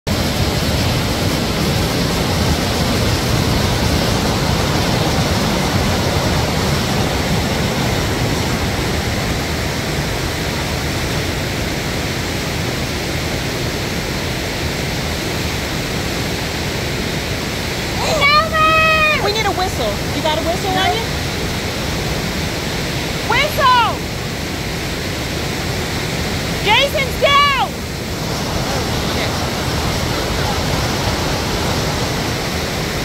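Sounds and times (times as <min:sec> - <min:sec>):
whitewater rapid rushing: 0:00.1 - 0:33.0.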